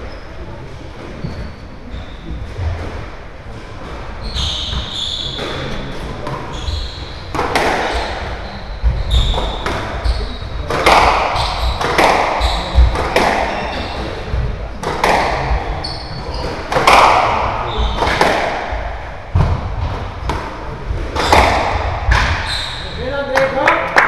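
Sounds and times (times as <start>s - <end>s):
shoes squeaking on wooden floor: 1.0s - 2.8s, 4.2s - 18.4s, 21.2s - 23.0s
squash ball strikes echoing: 7.3s - 22.5s.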